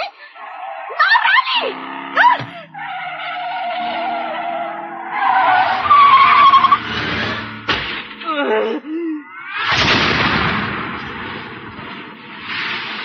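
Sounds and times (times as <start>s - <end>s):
tyres squealing: 0.4s - 9.7s
car engine running: 5.6s - 8.2s.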